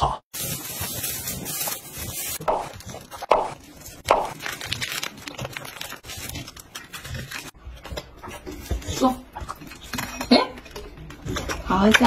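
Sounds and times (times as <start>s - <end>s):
plastic bags crinkling: 0.4s - 7.5s.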